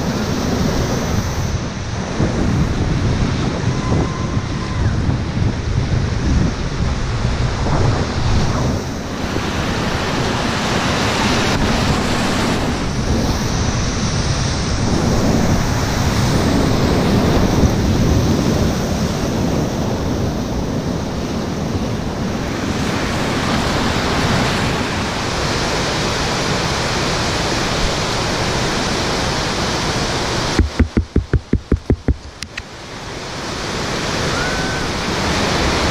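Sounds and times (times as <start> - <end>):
wind buffeting microphone: 0.0 - 25.3, 30.3 - 32.9
whitewater rushing and churning: 0.0 - 35.9.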